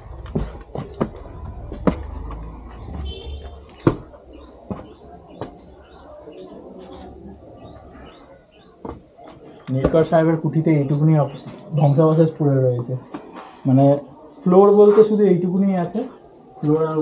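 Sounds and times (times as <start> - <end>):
footsteps scrambling over rubble: 0.0 - 11.7.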